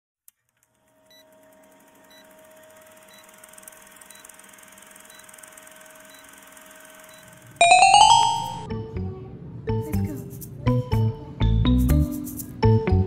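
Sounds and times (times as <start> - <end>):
film projector whirring: 0.7 - 7.6.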